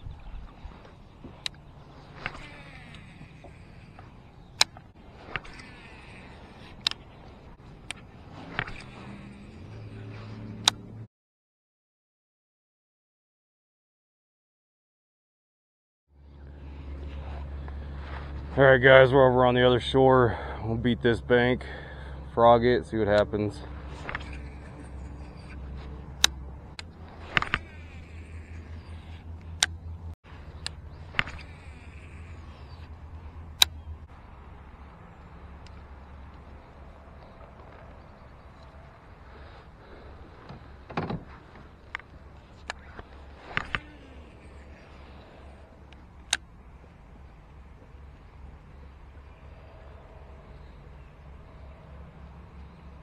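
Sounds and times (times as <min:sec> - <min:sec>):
low steady hum: 0:16.1 - 0:53.0.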